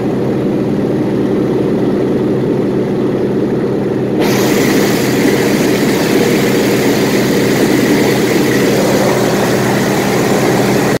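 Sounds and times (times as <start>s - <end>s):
propeller aircraft engine drone: 0.0s - 11.0s
rush of air: 4.2s - 11.0s.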